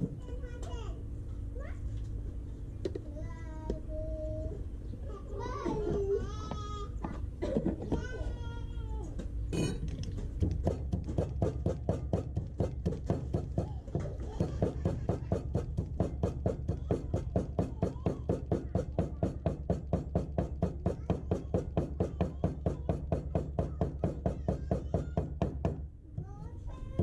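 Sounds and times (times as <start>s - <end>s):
cleaver chopping on wooden board: 10.4s - 13.7s.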